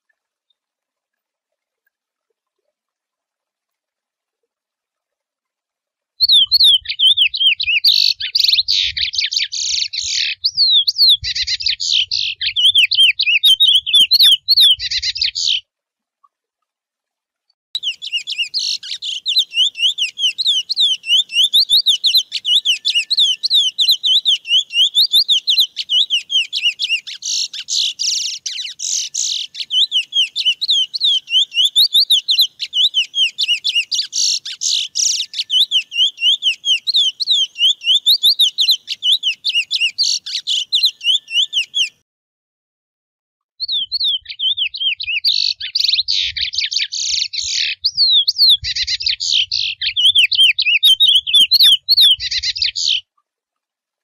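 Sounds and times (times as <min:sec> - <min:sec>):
finch singing warbling song: 0:06.2 - 0:15.6, 0:17.8 - 0:42.0, 0:43.6 - 0:53.1.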